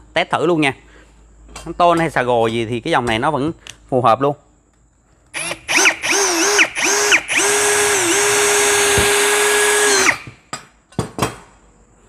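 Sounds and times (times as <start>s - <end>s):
cordless drill whining: 5.4s - 10.4s.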